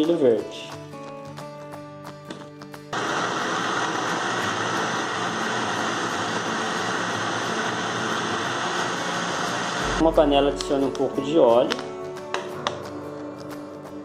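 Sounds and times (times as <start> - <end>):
blender whirring: 3.0 - 10.1.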